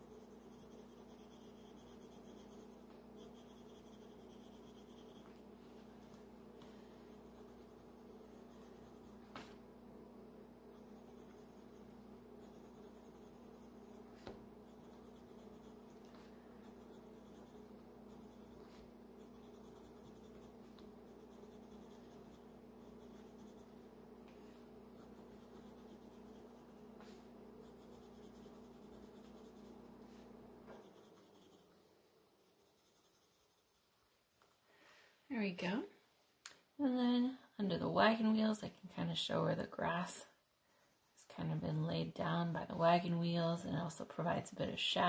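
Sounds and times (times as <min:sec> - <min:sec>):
pencil scratching on paper: 0:00.0 - 0:05.4, 0:07.0 - 0:09.6, 0:10.6 - 0:23.8, 0:24.4 - 0:34.0, 0:40.7 - 0:41.7
steady low hum: 0:00.0 - 0:36.0.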